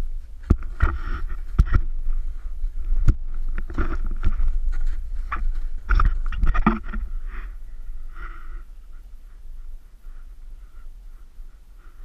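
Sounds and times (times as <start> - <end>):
camera knocks and snow scraping: 0.4 - 2.2, 3.0 - 7.1.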